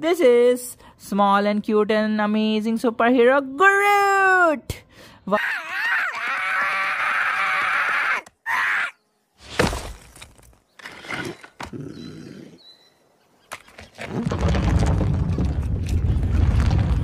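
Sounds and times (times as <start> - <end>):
wooden body thudding onto rocks: 9.4 - 10.6
low rumble: 14.3 - 17.0.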